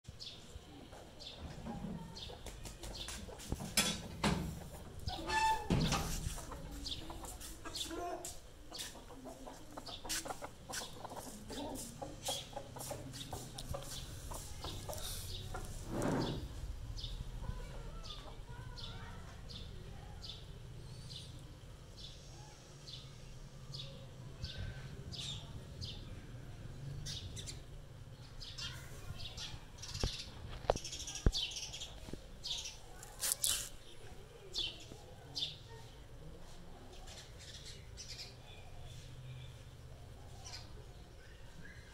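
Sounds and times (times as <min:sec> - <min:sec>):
birds chirping: 0:00.1 - 0:26.2.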